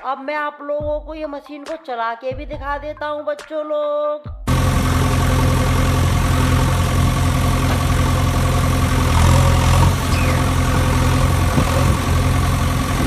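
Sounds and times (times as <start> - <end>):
engine idling drone: 4.5 - 13.0.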